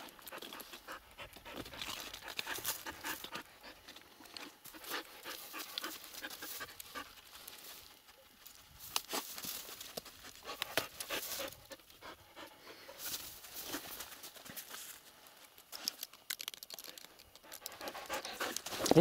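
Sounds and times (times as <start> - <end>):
dog panting: 0.0 - 4.0, 4.7 - 7.4, 10.3 - 13.0, 17.4 - 19.0.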